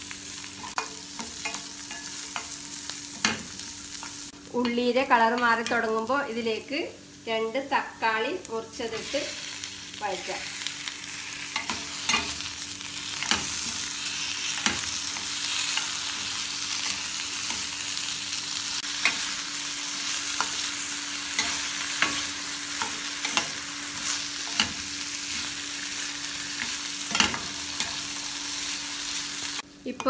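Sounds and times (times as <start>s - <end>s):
vegetables sizzling in oil: 0.0s - 30.0s.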